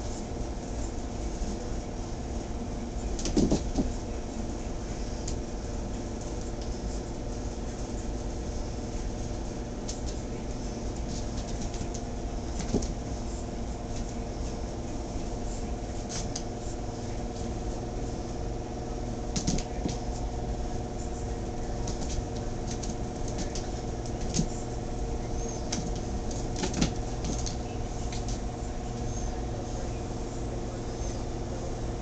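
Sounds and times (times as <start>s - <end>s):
steady low hum: 0.0s - 32.0s.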